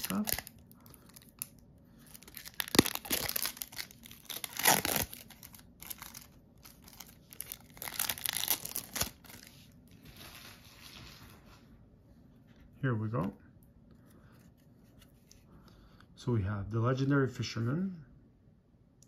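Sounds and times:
plastic shrink-wrap crinkling and tearing: 0.0 - 10.6.

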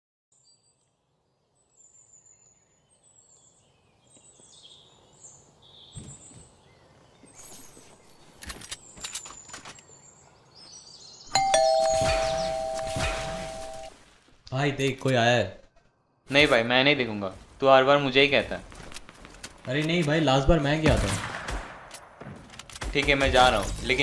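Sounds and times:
birds chirping: 0.4 - 13.9
two-note doorbell chime: 11.4 - 13.9.

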